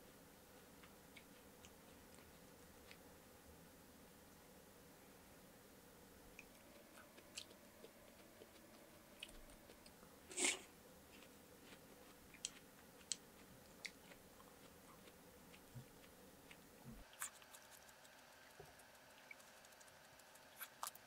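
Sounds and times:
chewing with mouth clicks: 6.4 - 10.0, 11.2 - 21.0.

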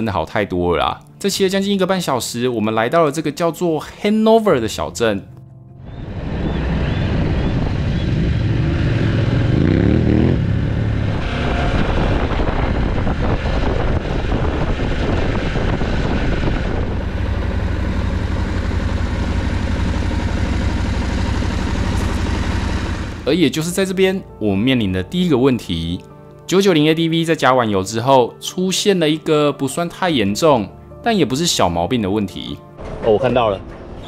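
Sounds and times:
motorcycle engine accelerating: 5.8 - 23.3.

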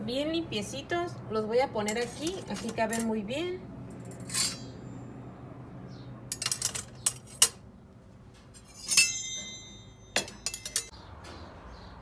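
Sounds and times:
metal utensils clinking in ceramic crock: 1.8 - 3.2, 6.3 - 7.6, 8.6 - 10.9.

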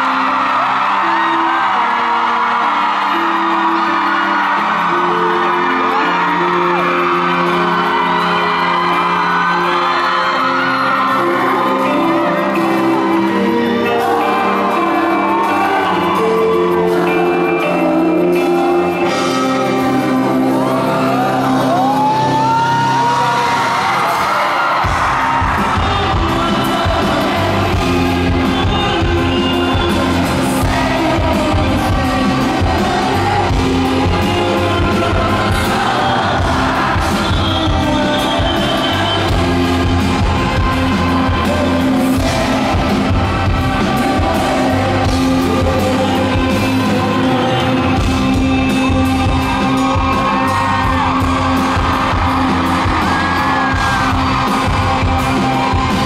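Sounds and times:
fans yelling and cheering: 0.0 - 56.0
live pop band: 0.0 - 56.0
man singing into microphone: 25.5 - 51.1.

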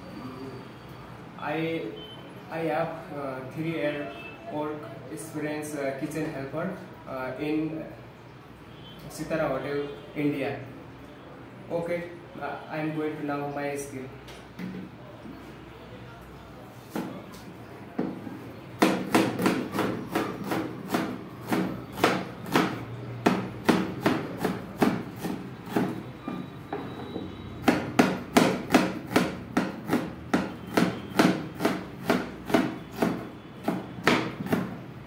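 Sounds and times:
knife chopping on cutting board: 18.8 - 26.9, 27.6 - 34.8.

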